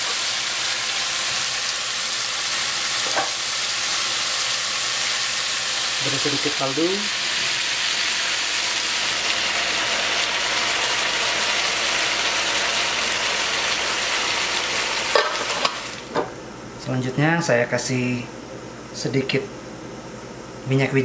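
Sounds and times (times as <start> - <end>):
chicken sizzling in a frying pan: 0.0 - 16.2.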